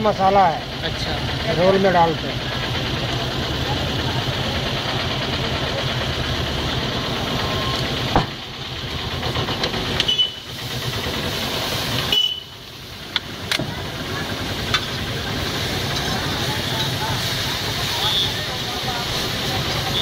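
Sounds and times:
food sizzling on griddle: 10.4 - 20.0.

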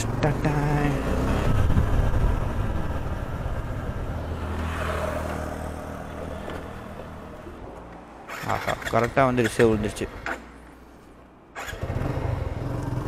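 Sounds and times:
wind on microphone: 1.3 - 4.2.

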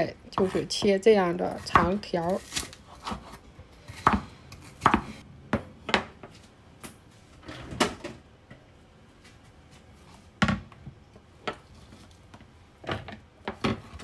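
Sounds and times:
knife chopping on wooden board: 4.0 - 5.2.

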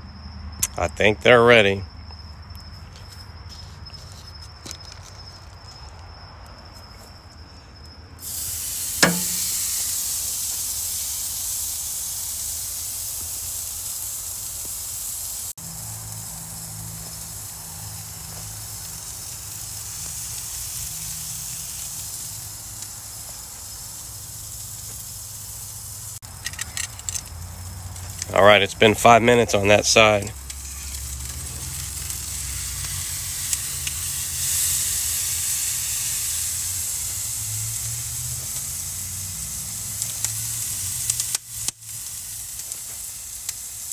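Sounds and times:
steak sizzling on a grill: 8.2 - 43.9
sharp click: 9.0 - 9.6.

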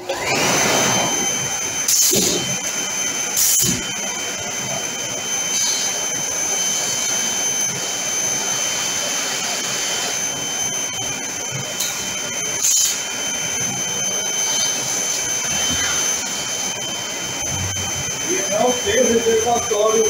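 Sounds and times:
industrial vacuum whining: 0.0 - 20.0.

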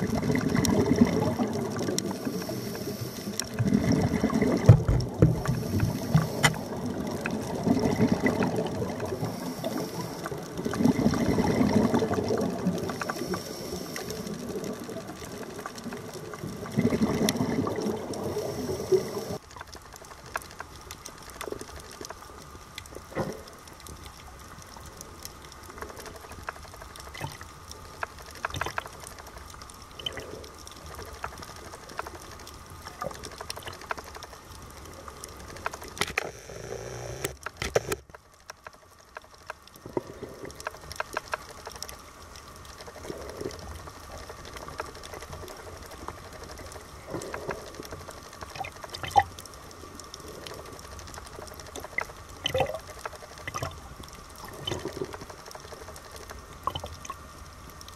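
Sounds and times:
underwater hiss: 0.0 - 14.7, 16.8 - 19.4
clicks and crackles: 0.0 - 57.9
underwater bubbling: 0.0 - 57.9.

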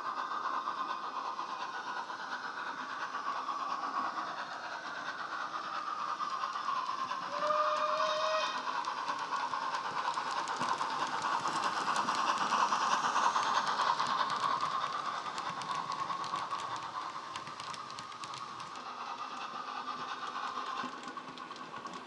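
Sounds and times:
rail clicks: 0.0 - 22.0
steam locomotive running sound: 0.0 - 22.0
model train whistle: 7.3 - 8.6.

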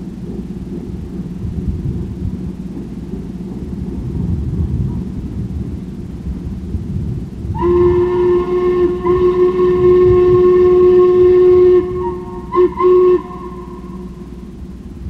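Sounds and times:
low rumble: 0.0 - 15.0
steam locomotive chime whistle: 7.6 - 14.7.

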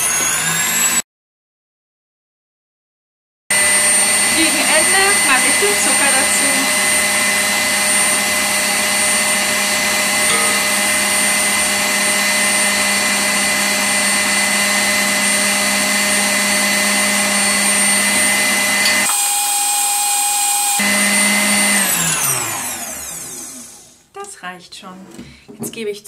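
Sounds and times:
stand mixer whisking: 3.5 - 23.9.

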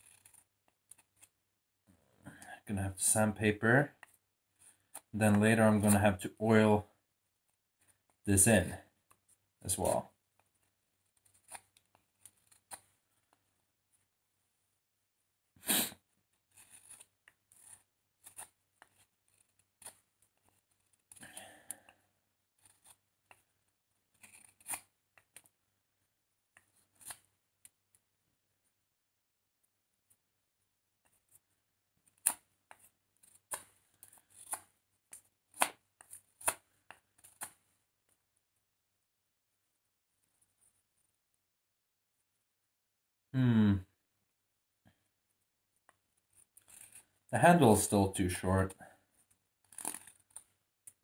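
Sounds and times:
knife shaving wood: 0.0 - 1.4, 9.0 - 13.4, 16.2 - 25.6, 26.5 - 27.7, 31.0 - 37.6, 45.8 - 47.3, 49.2 - 51.0.

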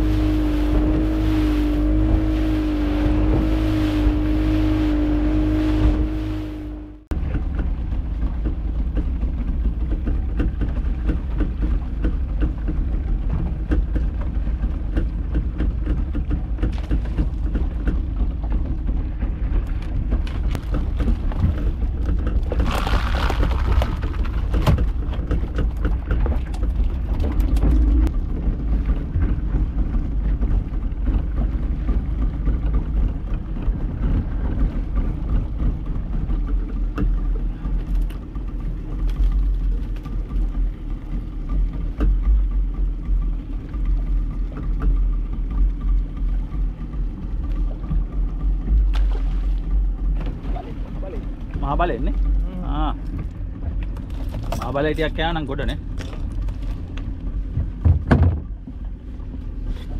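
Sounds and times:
water washing against boat: 0.0 - 59.9
wind rumbling on microphone: 0.0 - 59.9
knocks: 57.6 - 58.5.

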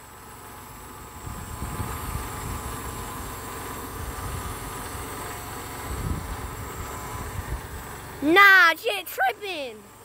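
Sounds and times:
tractor diesel engine rumbling: 0.0 - 10.0.

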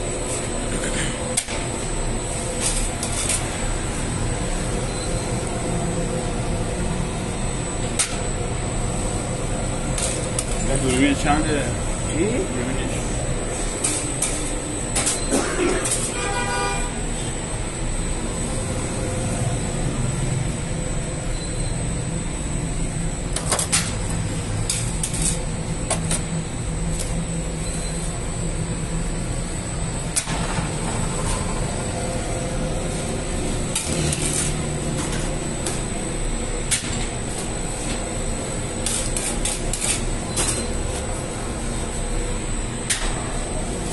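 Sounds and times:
machinery humming: 0.0 - 43.9
short horn-like tone: 16.0 - 17.0.

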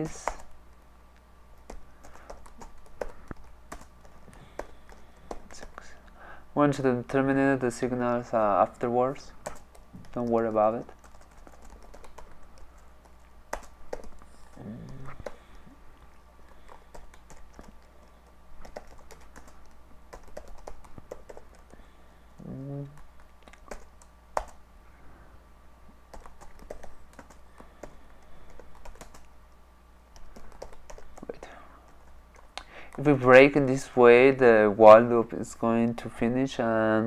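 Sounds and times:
computer keyboard typing: 0.0 - 0.5, 1.6 - 5.9, 9.4 - 15.6, 16.5 - 21.8, 22.4 - 24.6, 26.1 - 29.3, 30.1 - 33.0.

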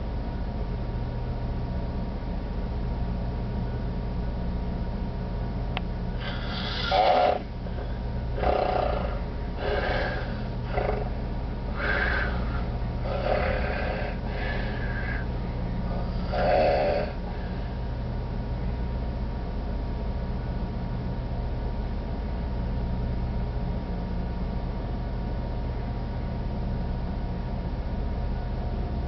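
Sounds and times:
steady low hum: 0.0 - 29.0
man snoring heavily: 6.2 - 17.6.

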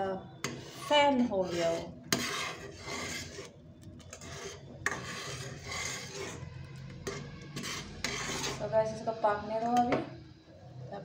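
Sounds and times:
ladle scraping a steel pot: 0.4 - 8.7.

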